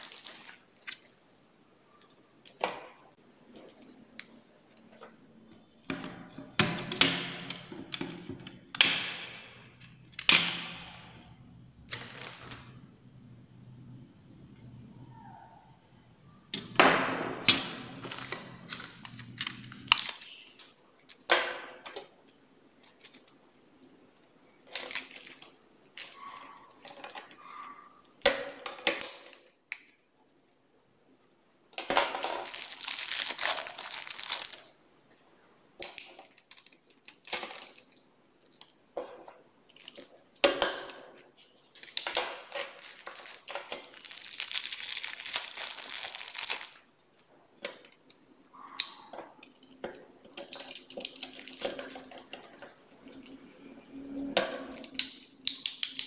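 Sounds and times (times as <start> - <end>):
plastic packets crinkling: 0.0 - 1.4, 11.9 - 12.7, 18.0 - 20.7, 24.7 - 27.4, 32.2 - 34.8, 36.2 - 38.0, 41.5 - 47.8, 50.3 - 52.6.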